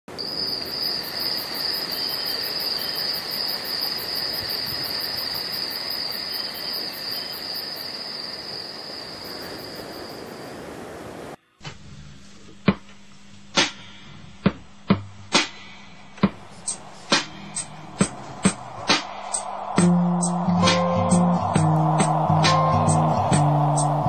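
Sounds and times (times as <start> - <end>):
crickets trilling: 0.1 - 11.4, 16.4 - 20.4
surf hissing: 0.2 - 11.4, 15.4 - 24.0.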